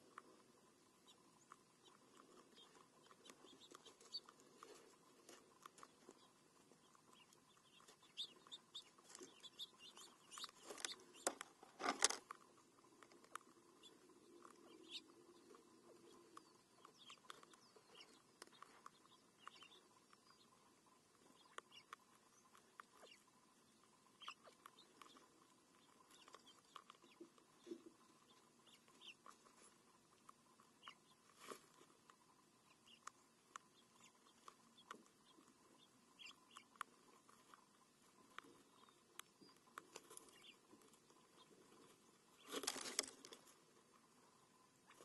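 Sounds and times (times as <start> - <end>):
rabbits nibbling on gravel: 0.0 - 45.0.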